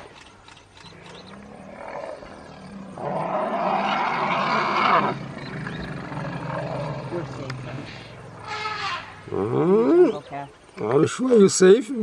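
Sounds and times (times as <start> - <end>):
elephant low rumble: 0.9 - 10.2
elephant harsh roar: 1.3 - 10.0.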